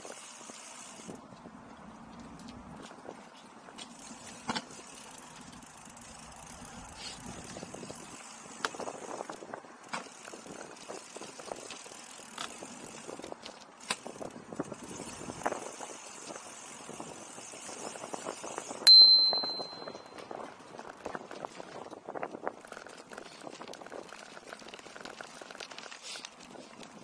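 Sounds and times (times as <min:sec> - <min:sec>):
bicycle tyres crunching on gravel: 0:00.0 - 0:18.8, 0:20.2 - 0:27.0
bicycle frame rattling: 0:03.7 - 0:27.0
bicycle bell ding: 0:18.9 - 0:20.2.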